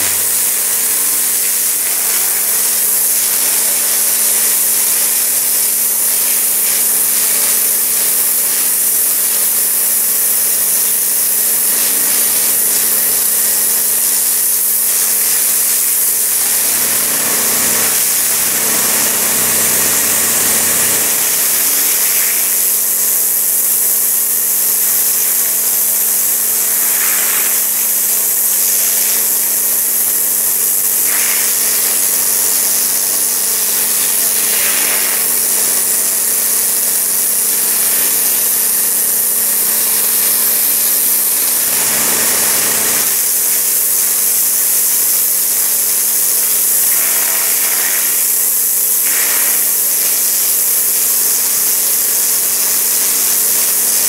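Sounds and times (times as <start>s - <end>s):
pressure washer jet spraying: 0.0s - 54.0s
motor hum: 16.6s - 21.5s, 41.2s - 43.1s.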